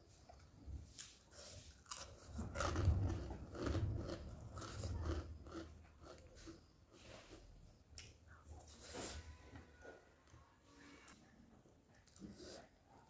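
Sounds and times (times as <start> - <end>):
person chewing crunchy food: 0.3 - 9.3.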